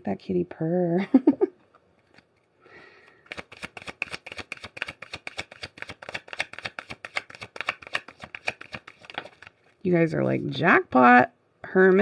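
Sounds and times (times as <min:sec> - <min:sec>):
cards being shuffled: 0:03.0 - 0:09.8.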